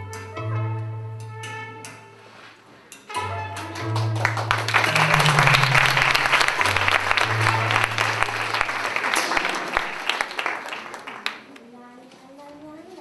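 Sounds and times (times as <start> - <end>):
music in low sustained notes: 3.2 - 8.8
audience applauding: 3.5 - 11.5.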